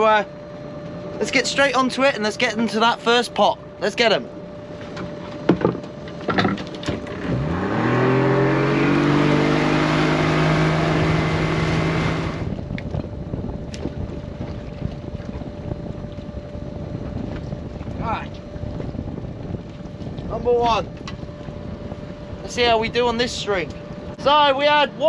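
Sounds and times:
low steady rumble: 0.0 - 25.0
outboard motor throttling up: 4.3 - 24.9
water rushing from wake: 6.7 - 22.6.

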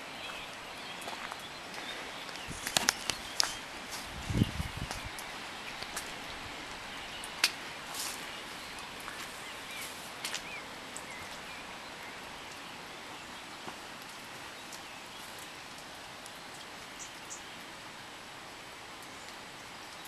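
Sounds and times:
light rain hissing: 0.0 - 20.0
water drip clicks: 0.2 - 4.1, 4.8 - 11.5
low rumble on microphone: 4.0 - 5.2.

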